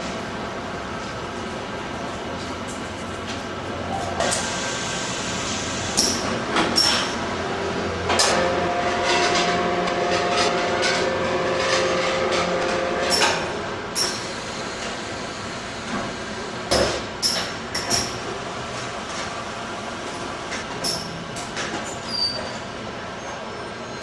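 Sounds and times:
welding machine clunks and hisses: 0:04.2 - 0:07.2, 0:12.6 - 0:19.4
steady machine tone: 0:08.2 - 0:14.8.

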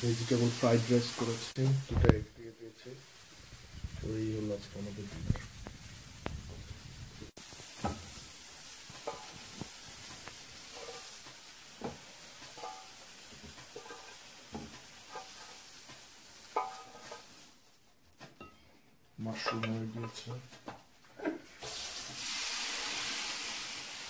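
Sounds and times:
food sizzling in a frying pan: 0:00.0 - 0:18.6, 0:19.2 - 0:24.0
metal utensil clinking on pan: 0:11.8 - 0:13.0, 0:16.5 - 0:17.2, 0:19.3 - 0:20.4.

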